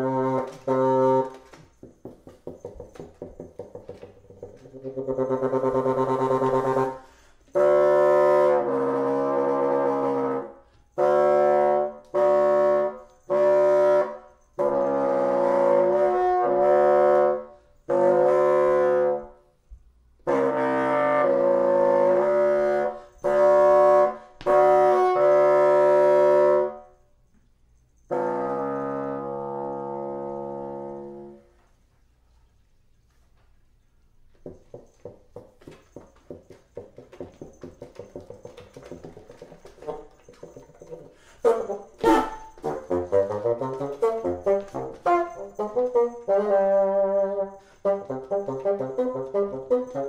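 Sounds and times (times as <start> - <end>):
bassoon playing held notes: 0.0 - 1.7, 3.7 - 19.4, 20.2 - 26.8, 28.1 - 31.6, 37.9 - 50.0.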